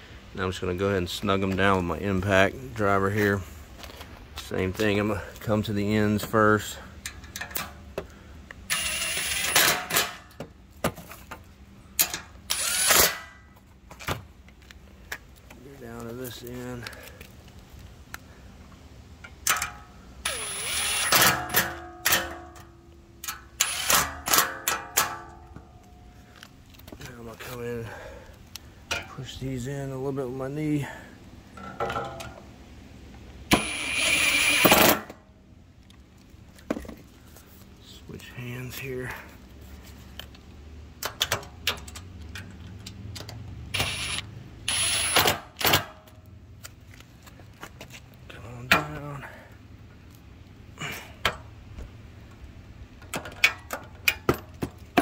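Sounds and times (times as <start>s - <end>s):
impact driver whirring: 8.7s - 10.2s, 12.5s - 13.3s, 20.3s - 21.6s, 23.6s - 24.3s, 33.5s - 35.1s, 43.7s - 45.8s.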